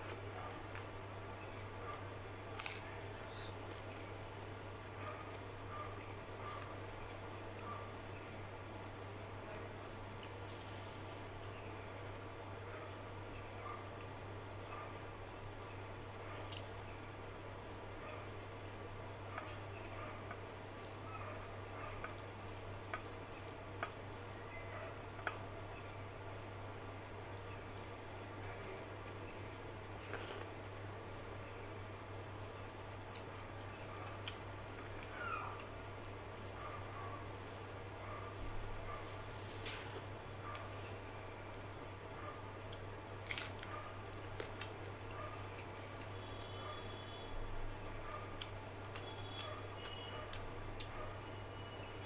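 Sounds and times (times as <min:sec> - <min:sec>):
close-up chewing: 0:01.9 - 0:08.2, 0:42.6 - 0:51.2.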